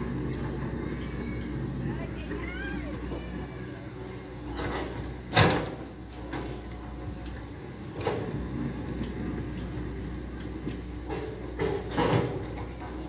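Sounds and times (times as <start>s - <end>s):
diesel engine running: 0.0s - 13.0s
excavator bucket clanking and scraping: 4.5s - 6.8s, 7.9s - 8.6s, 11.0s - 13.0s.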